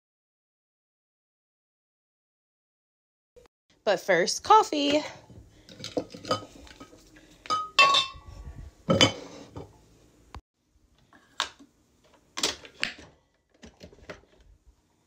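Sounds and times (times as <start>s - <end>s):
ceramic lid clinking: 7.5s - 8.2s.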